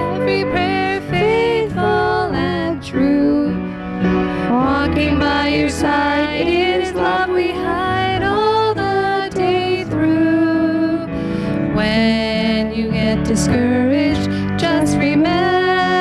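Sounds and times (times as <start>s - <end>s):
piano accompaniment: 0.0s - 16.0s
person singing gospel song: 4.3s - 11.1s.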